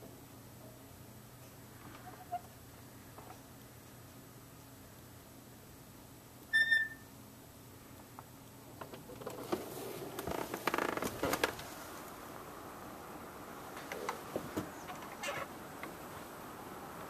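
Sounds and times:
short high chirp: 0:06.5 - 0:07.1
rustling: 0:09.0 - 0:12.4.

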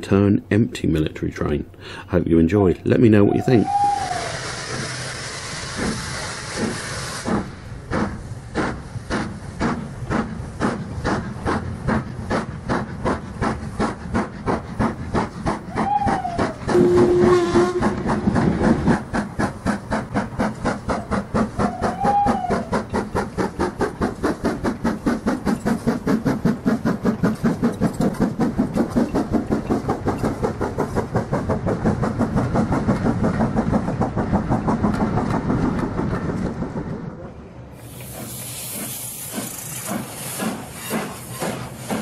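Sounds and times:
steam locomotive chuffing: 0:03.1 - 0:42.0
steam locomotive hissing steam: 0:03.2 - 0:35.6, 0:37.7 - 0:42.0
short train whistle: 0:03.4 - 0:04.8, 0:15.8 - 0:18.1, 0:21.6 - 0:22.7.

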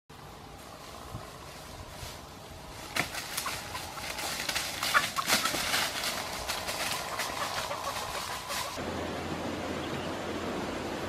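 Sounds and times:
footsteps running through dry leaves: 0:01.3 - 0:08.8
twigs snapping: 0:02.8 - 0:07.5.

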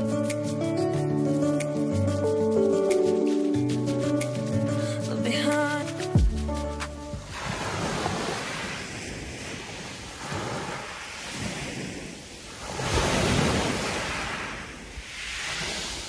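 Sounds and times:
sea waves washing onto shore: 0:06.7 - 0:16.0.

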